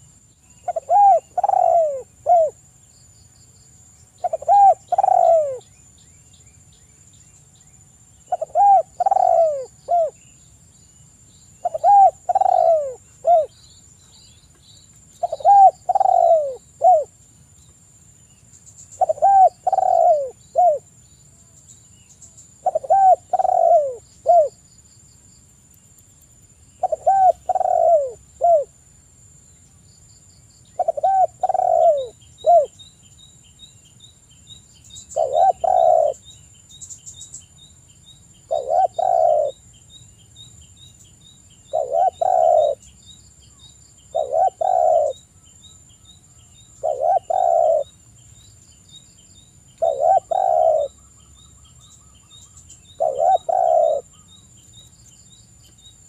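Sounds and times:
dove cooing: 0.6s - 2.6s, 4.2s - 5.7s, 8.3s - 10.2s, 11.6s - 13.5s, 15.2s - 17.1s, 19.0s - 20.9s, 22.6s - 24.6s, 26.8s - 28.7s, 30.8s - 32.8s, 35.1s - 36.2s, 38.5s - 39.6s, 41.7s - 42.9s, 44.1s - 45.2s, 46.8s - 47.9s, 49.8s - 51.0s, 53.0s - 54.3s.

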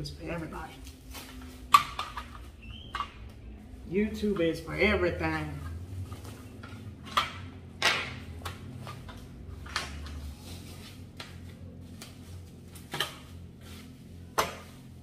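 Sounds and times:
low steady hum: 0.0s - 15.0s
bubble wrap crinkling: 0.4s - 4.0s.

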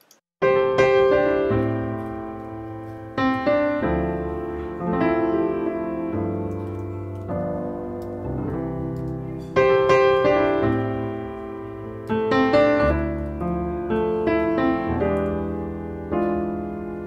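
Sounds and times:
slow piano music: 0.4s - 17.0s.

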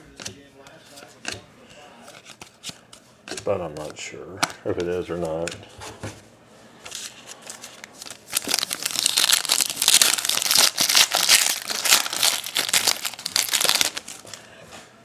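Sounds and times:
foil wrapper crinkling: 7.4s - 14.3s.

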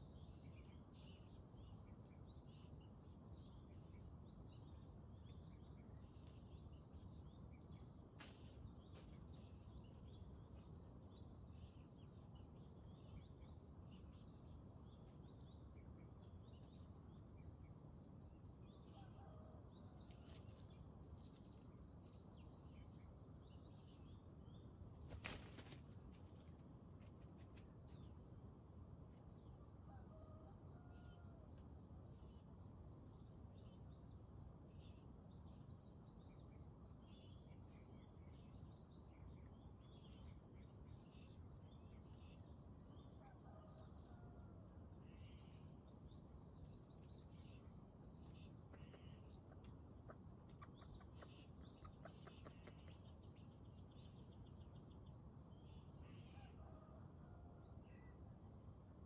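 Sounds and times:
high insect trill: 25.0s - 26.5s.

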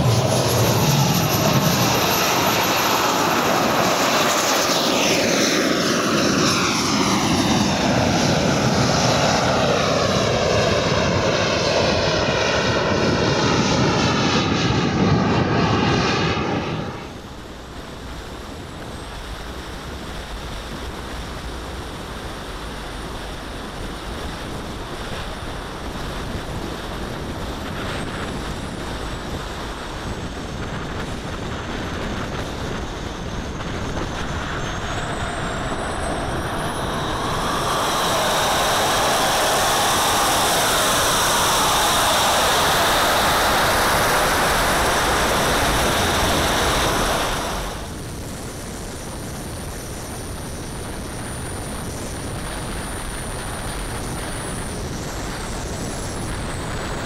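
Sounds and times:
loud jet turbine rush: 0.0s - 57.0s
turbine and air noise: 0.0s - 57.0s.

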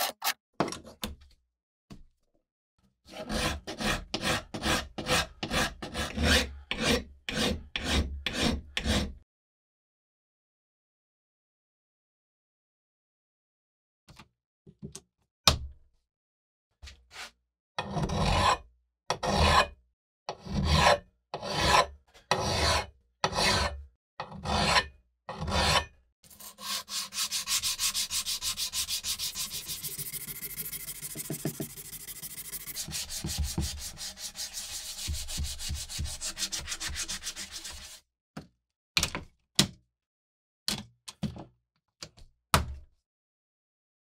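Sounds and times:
abrasive block rubbing steel edge: 26.3s - 38.0s.

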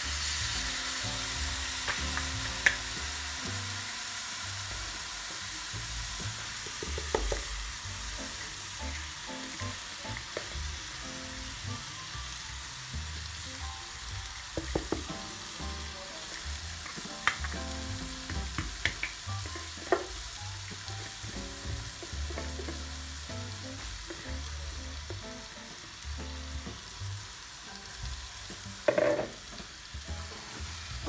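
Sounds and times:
food sizzling in a pan: 0.0s - 31.0s
spoon knocking against pan: 28.9s - 29.4s.

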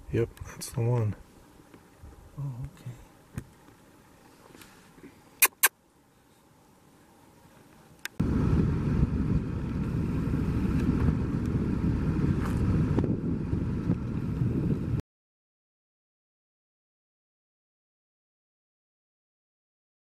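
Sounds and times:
sharp clicks: 5.4s - 5.7s
low rumble on camera microphone: 8.2s - 15.0s.

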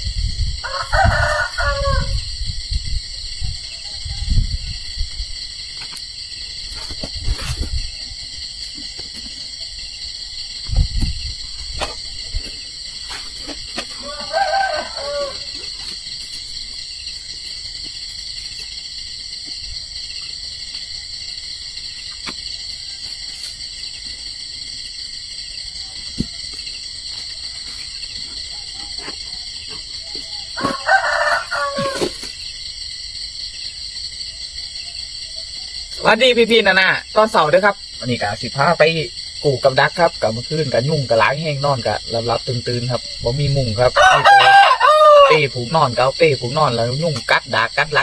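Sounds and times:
night insects chorus: 0.0s - 48.0s
rooster crowing: 0.6s - 2.4s, 13.8s - 15.8s, 28.4s - 32.2s, 43.8s - 45.6s.

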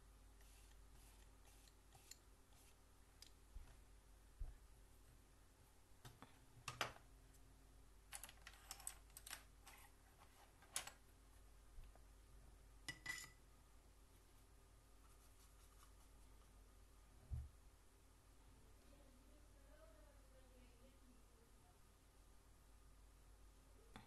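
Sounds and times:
small objects clicking on desk: 8.1s - 9.9s.

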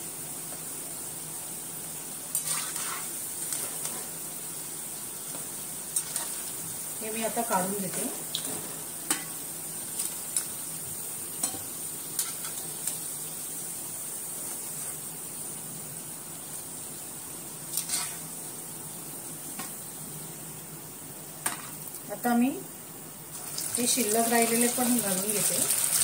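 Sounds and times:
hot oil sizzling in a wok: 0.0s - 26.0s
metal spatula scraping a pan: 2.3s - 4.1s, 6.0s - 6.5s, 12.2s - 12.7s, 17.7s - 18.3s.

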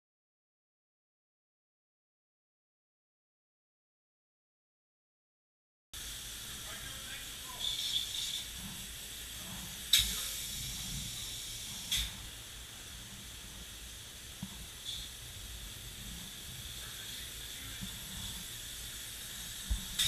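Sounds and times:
spray foam gun hissing: 6.0s - 20.0s.

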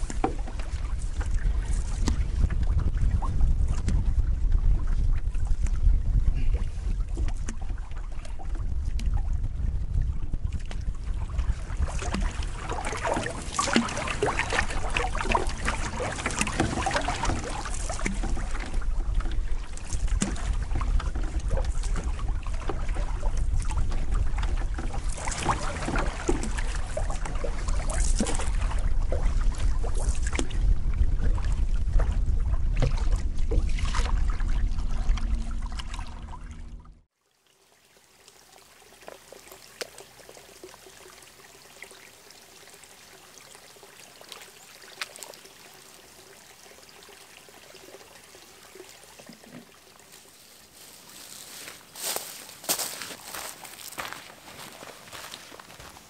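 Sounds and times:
water splashing against canoe hull: 0.0s - 37.0s, 43.7s - 56.0s
wind rumbling on microphone: 0.0s - 37.1s
water trickling: 10.6s - 56.0s.

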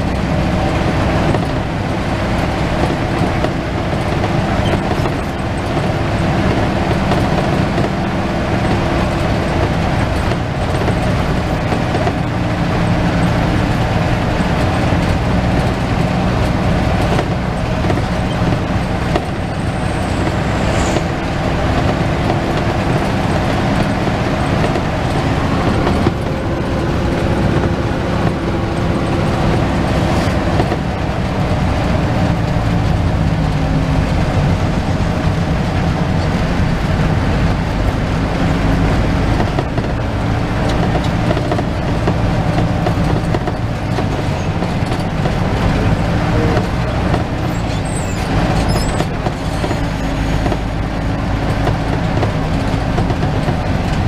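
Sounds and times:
bus engine running: 0.0s - 54.0s
road and tyre noise: 0.0s - 54.0s.

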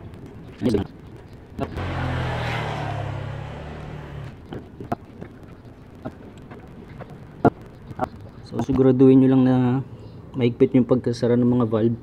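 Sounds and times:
vehicle passing by: 1.8s - 4.4s.

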